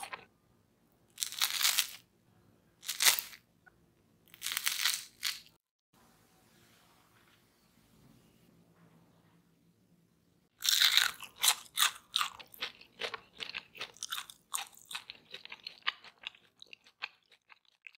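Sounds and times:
crunchy bite into fried food: 10.6s - 17.9s
crunchy chewing: 10.6s - 17.9s.

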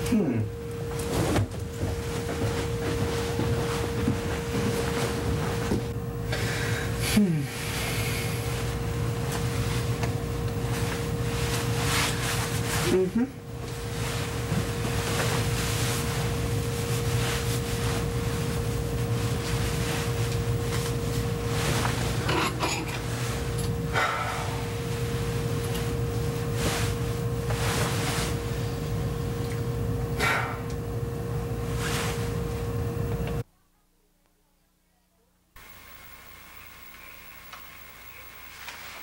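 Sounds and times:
steady hum: 0.0s - 39.0s
clothing rustling and handling: 0.8s - 5.9s, 10.6s - 23.6s, 24.6s - 29.1s.

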